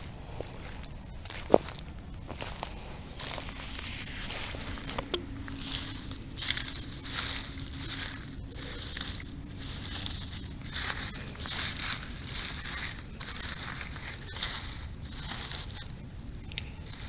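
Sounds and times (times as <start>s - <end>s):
footsteps crunching on dry stubble: 0.0s - 17.0s.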